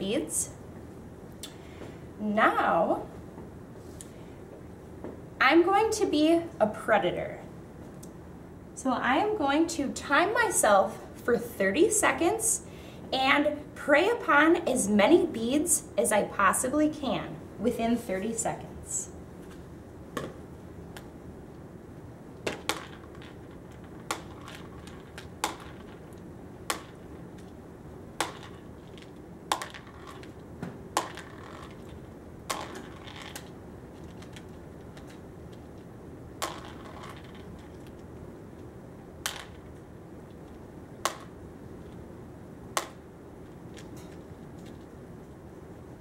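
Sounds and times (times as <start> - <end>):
beads dropping into plastic bowl: 22.4 - 27.6, 28.2 - 30.4, 31.0 - 38.0, 39.2 - 39.8
beads rattling: 22.5 - 27.6, 28.2 - 30.4, 31.0 - 38.1.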